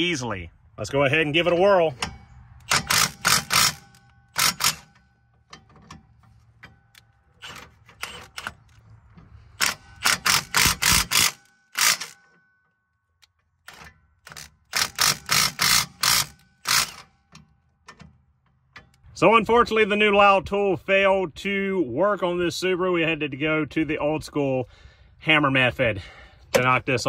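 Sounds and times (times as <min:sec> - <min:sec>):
hand ratchet clicking: 0:02.0 - 0:05.0, 0:09.6 - 0:12.2, 0:13.7 - 0:17.1.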